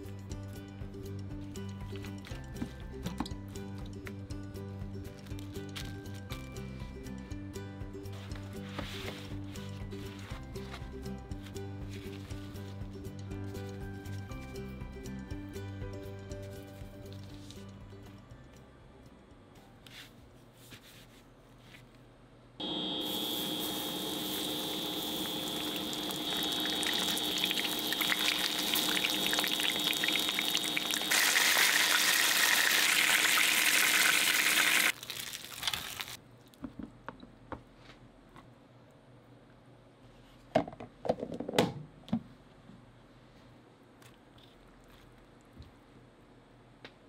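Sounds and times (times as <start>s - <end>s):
steady high whine: 22.6s - 30.9s
fish sizzling in hot oil: 23.0s - 36.2s.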